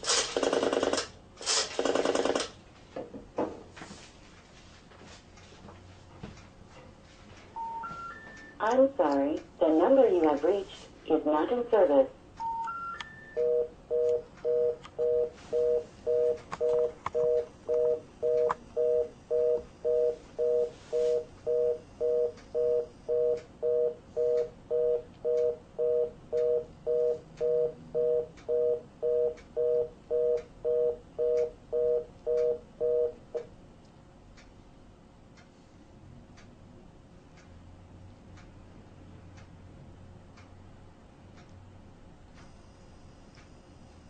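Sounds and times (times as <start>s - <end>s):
fast busy tone beeps: 7.6s - 8.6s, 12.4s - 33.2s.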